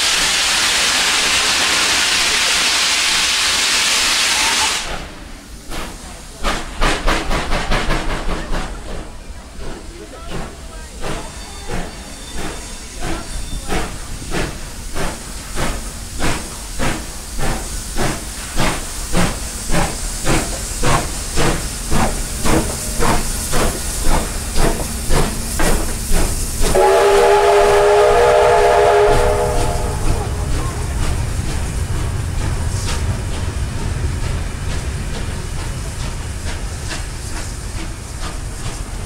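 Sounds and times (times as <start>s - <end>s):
steam locomotive exhaust beats: 0.0s - 39.0s
steam whistle blast: 26.6s - 30.4s.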